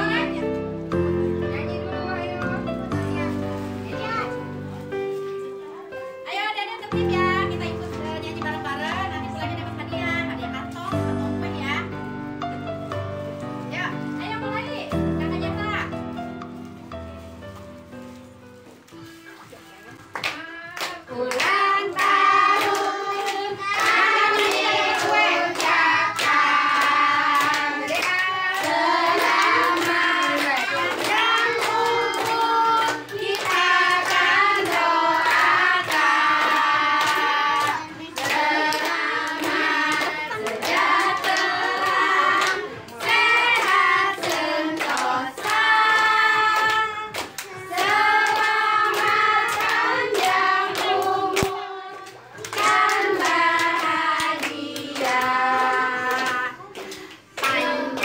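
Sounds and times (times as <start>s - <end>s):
hand-clapping: 20.0s - 58.0s
women and children singing: 20.2s - 58.0s.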